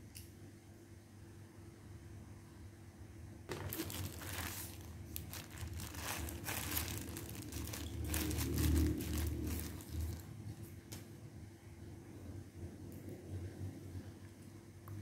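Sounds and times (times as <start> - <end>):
plastic wrapper crinkling: 3.5 - 10.4.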